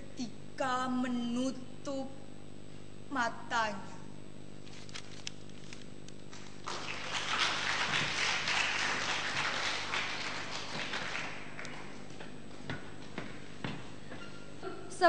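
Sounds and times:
steady low hum: 0.0 - 15.0
audience clapping: 6.3 - 13.4.

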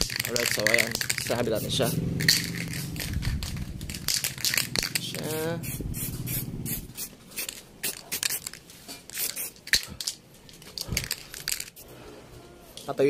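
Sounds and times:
spray paint can hissing: 0.0 - 10.2.

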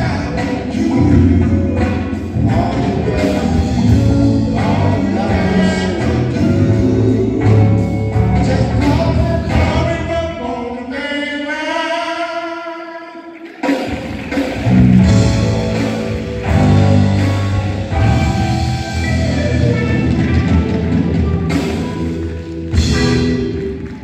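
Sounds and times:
musical accompaniment: 0.0 - 11.0, 13.1 - 24.0
person singing: 0.0 - 14.0.

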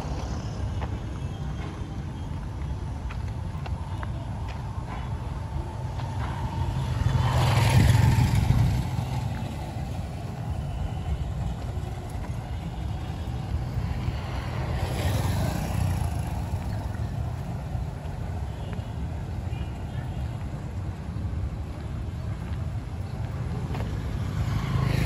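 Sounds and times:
vehicles passing on dirt road: 0.0 - 25.0
motorcycle passing: 5.1 - 20.1, 22.1 - 25.0.

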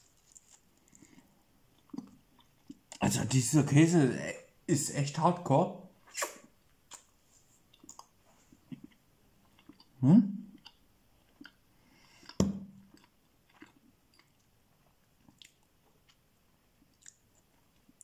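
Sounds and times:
man chewing food: 0.0 - 3.0, 6.8 - 18.0
wet mouth clicks: 6.1 - 7.1.

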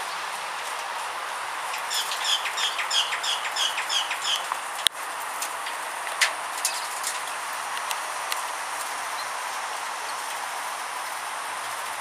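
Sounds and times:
parrot chirping: 1.9 - 4.5.

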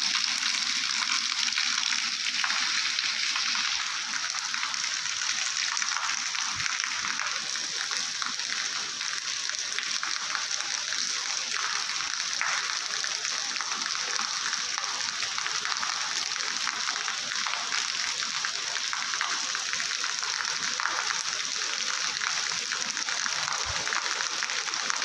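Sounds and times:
heavy rain on stone paving: 1.1 - 25.0.

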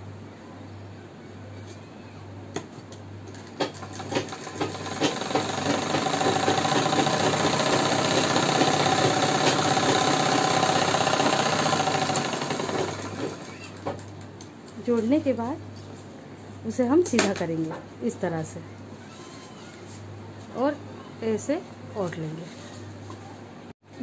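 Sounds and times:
sewing machine stitching: 3.4 - 14.0.

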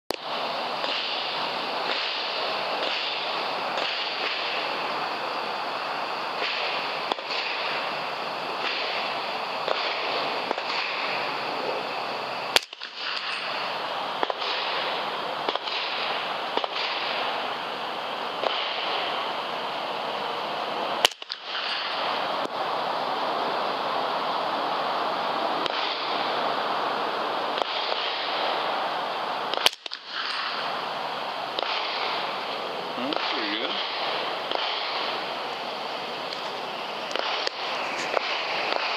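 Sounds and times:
steady hiss: 0.1 - 38.9
rifle shots: 0.8 - 4.8, 6.4 - 7.9, 8.6 - 11.3, 12.5 - 17.5, 18.4 - 19.2, 21.0 - 22.2, 25.6 - 26.2, 27.6 - 28.6, 29.5 - 30.8, 31.5 - 35.4, 37.1 - 38.9.

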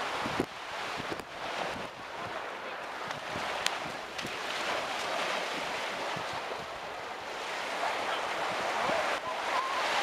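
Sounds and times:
ocean surf washing onto beach: 0.0 - 10.0.

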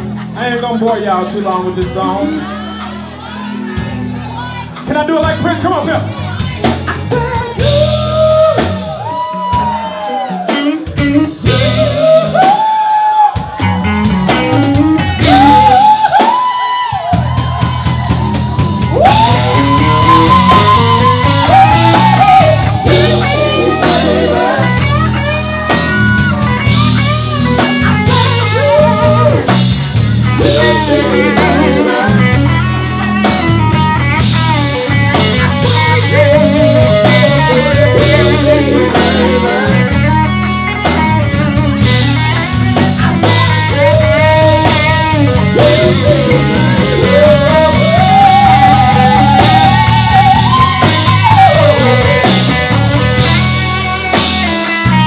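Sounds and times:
blues band playing: 0.0 - 55.0
lead guitar bending notes: 17.6 - 55.0.

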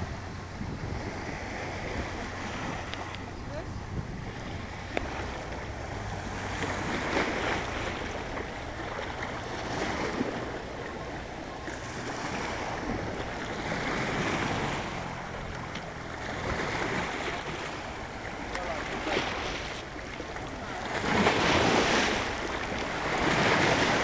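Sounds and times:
waves lapping on pebble shore: 0.0 - 24.0.

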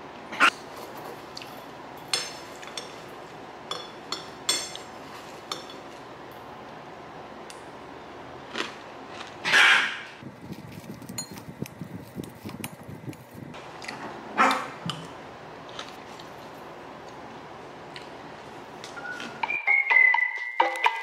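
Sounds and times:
spoon scraping enamel bowl: 10.9 - 13.3.

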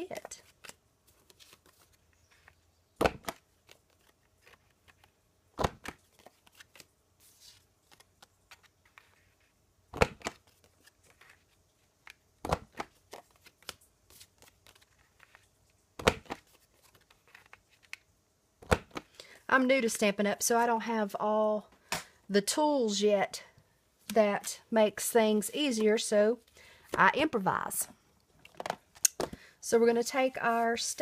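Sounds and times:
card rustling: 0.0 - 19.2.

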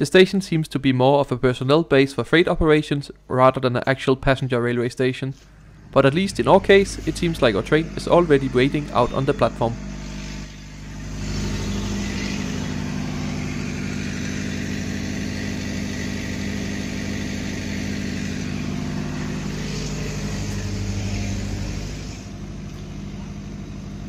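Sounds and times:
engine hiss: 5.4 - 22.5
diesel engine humming: 5.4 - 24.0.

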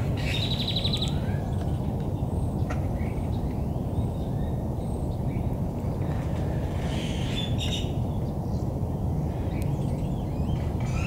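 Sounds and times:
birds calling and chirping: 0.0 - 11.0.

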